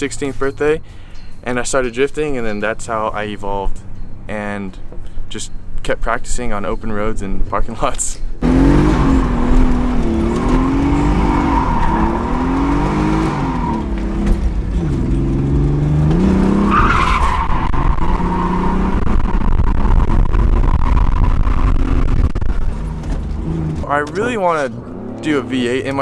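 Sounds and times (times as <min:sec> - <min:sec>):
tyres squealing: 0:08.4 - 0:21.6
car engine revving: 0:08.4 - 0:26.0.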